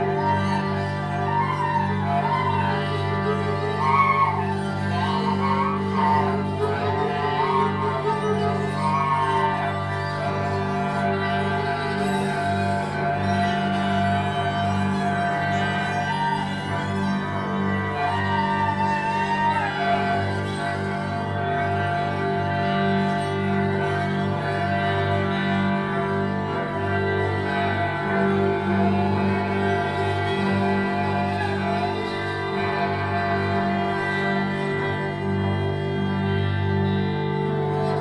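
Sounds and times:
bowed electric string instrument: 0.0s - 38.0s
clarinet: 0.0s - 38.0s
electric guitar drone: 0.0s - 38.0s.

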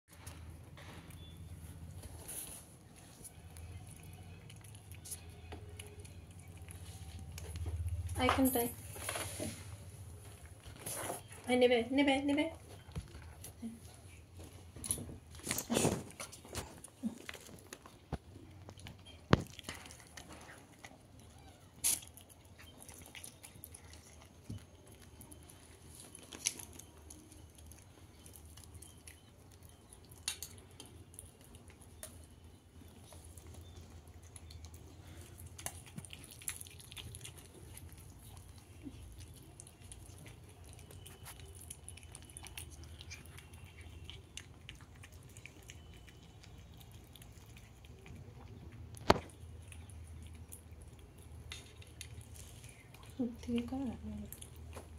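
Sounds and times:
cat chewing and crunching: 0.1s - 54.9s.

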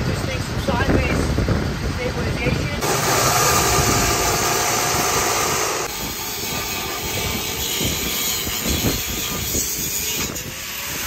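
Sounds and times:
wind buffeting microphone: 0.0s - 11.0s
chop saw cutting steel: 2.8s - 11.0s.

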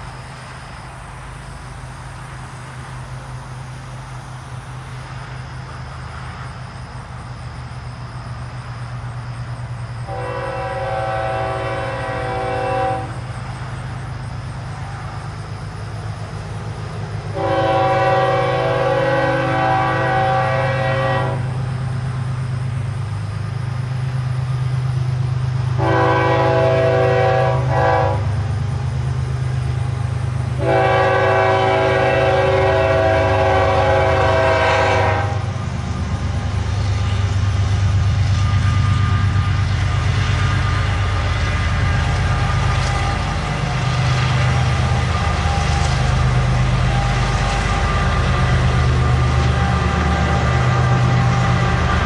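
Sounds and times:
train rumble: 0.0s - 52.0s
locomotive air horn blasts: 10.1s - 13.2s, 17.3s - 21.6s, 25.8s - 28.4s, 30.6s - 35.5s, 38.4s - 52.0s.

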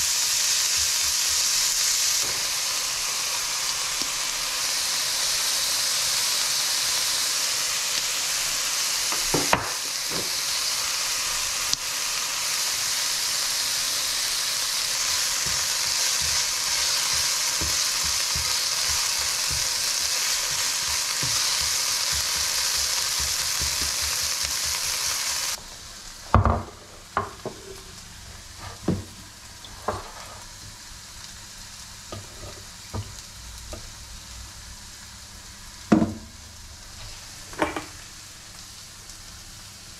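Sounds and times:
meat sizzling in a frying pan: 0.0s - 39.9s
spatula knocking on pan: 15.4s - 24.9s.

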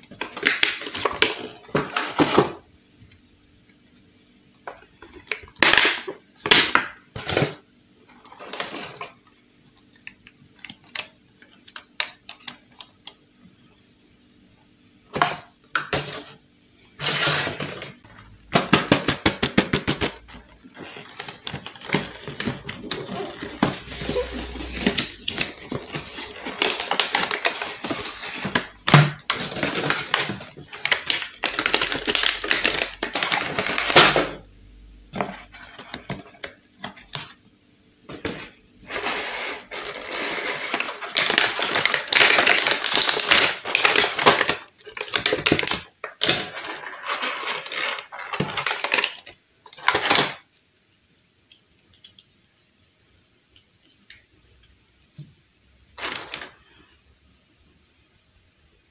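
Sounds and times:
plastic packaging crinkling: 0.0s - 2.6s, 17.0s - 34.4s, 38.2s - 50.4s, 56.0s - 57.0s.

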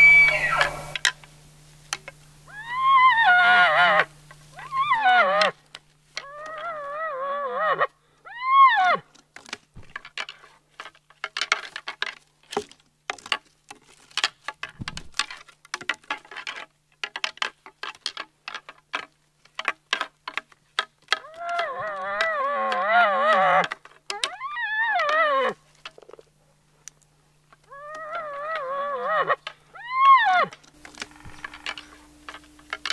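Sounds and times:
sticks and brush snapping: 9.1s - 32.9s.

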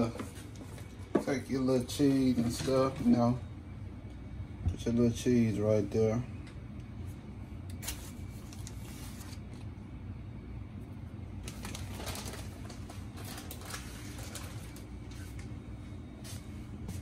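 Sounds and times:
steady low hum: 0.0s - 17.0s
plastic bag crinkling: 11.4s - 15.4s.

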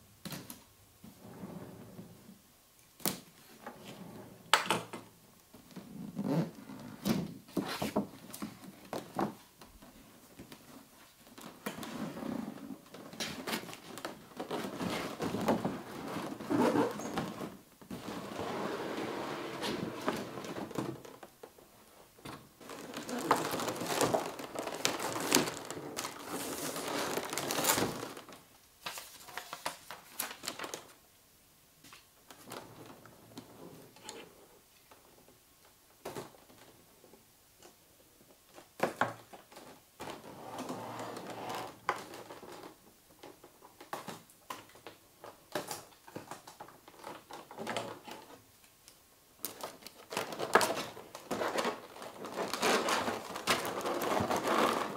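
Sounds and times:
plastic packaging crinkling: 22.6s - 31.0s, 49.4s - 54.9s.

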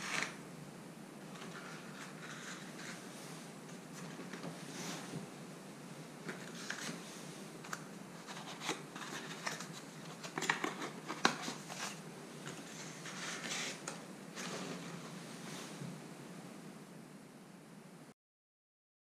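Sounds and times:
paper rustling and scraping: 0.0s - 0.4s, 1.3s - 5.2s, 6.2s - 15.8s.

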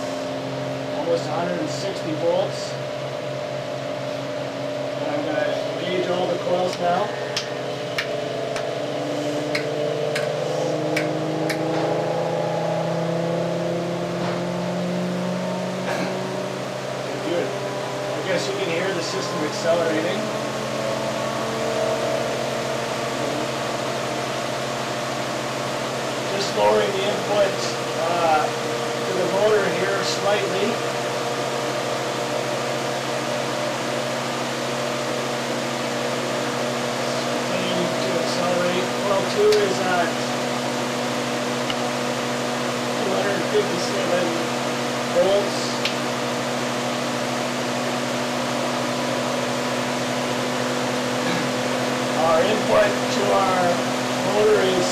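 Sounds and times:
electric motor humming: 0.0s - 54.9s
man talking: 5.0s - 7.3s, 18.2s - 20.3s, 26.3s - 30.8s, 37.1s - 40.4s, 43.0s - 44.5s, 52.2s - 54.9s.

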